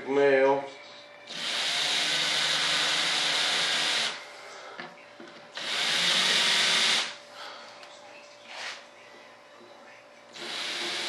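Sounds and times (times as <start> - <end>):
electric hand drill running: 1.3 - 4.2, 5.6 - 7.2, 10.4 - 11.0.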